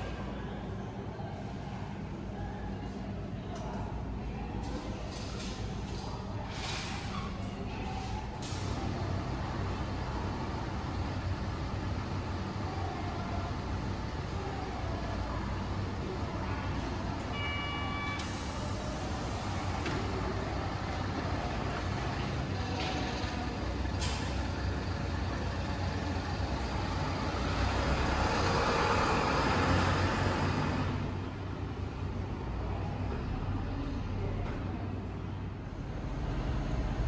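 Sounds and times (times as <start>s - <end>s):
bus engine idling: 0.0s - 37.0s.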